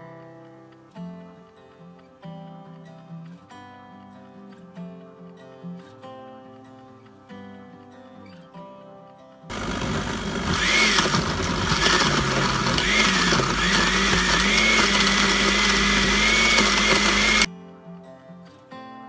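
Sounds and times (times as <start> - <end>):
blender motor whining: 9.5 - 17.5.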